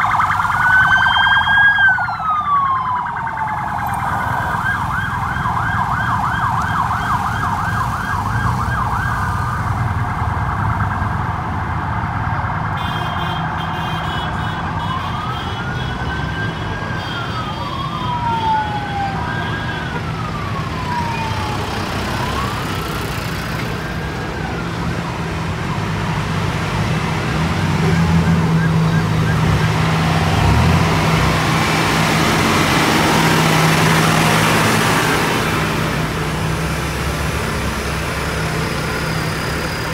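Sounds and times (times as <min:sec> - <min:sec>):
siren yelping and wailing: 0:00.0 - 0:25.8, 0:27.6 - 0:31.0
motorcycle engines passing: 0:16.0 - 0:39.9
tractor diesel engine drone: 0:16.5 - 0:39.9.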